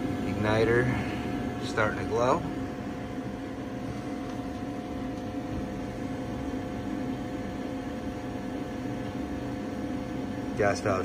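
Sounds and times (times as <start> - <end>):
furnace fan humming: 0.0 - 11.0.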